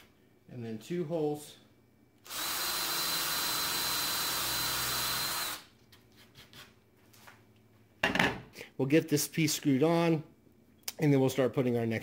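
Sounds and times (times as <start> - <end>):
cordless drill boring wood: 2.2 - 5.7.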